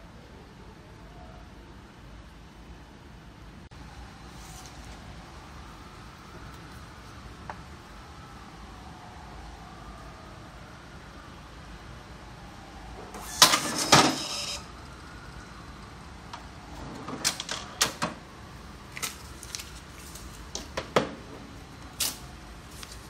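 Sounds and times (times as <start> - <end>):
receipt printer clattering: 13.2 - 14.6
paper rustling: 18.9 - 20.6, 22.0 - 23.0.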